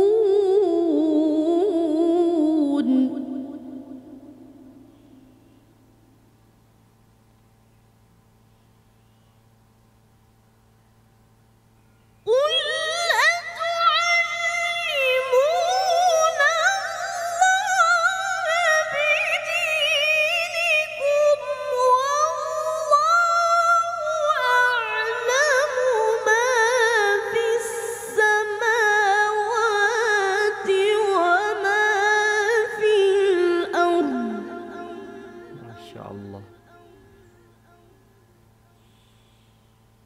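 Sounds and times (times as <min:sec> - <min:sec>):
boy reciting melodically: 0:00.0 - 0:04.1, 0:12.3 - 0:39.0
faint low hum: 0:00.0 - 0:40.0.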